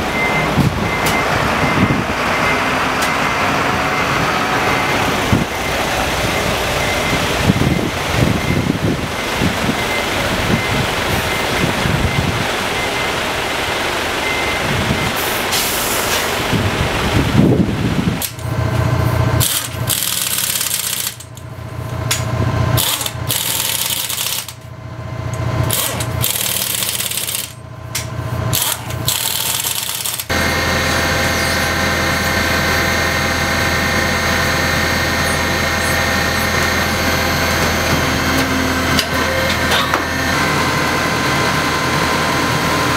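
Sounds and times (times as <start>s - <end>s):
diesel truck engine running: 0.0s - 42.9s
steady machine hum: 16.3s - 42.9s
pneumatic impact wrench hammering: 19.4s - 21.4s, 22.1s - 24.7s, 25.6s - 30.4s.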